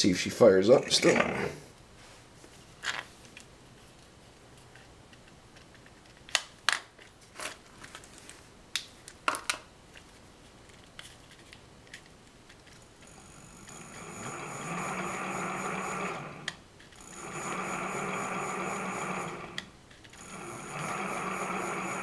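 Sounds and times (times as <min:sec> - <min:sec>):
electric motor whine: 0:13.0 - 0:22.0.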